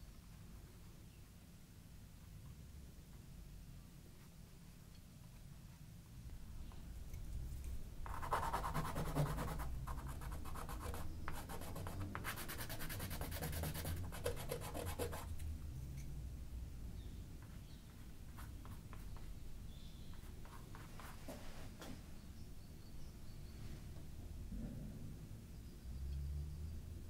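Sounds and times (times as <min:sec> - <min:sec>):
paintbrush scratching on paper: 0:08.1 - 0:15.3.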